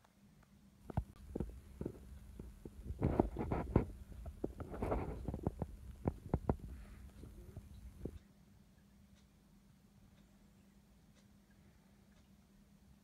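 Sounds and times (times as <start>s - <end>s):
soft clicks and rustles: 0.0s - 8.3s
cat purring: 1.0s - 8.2s.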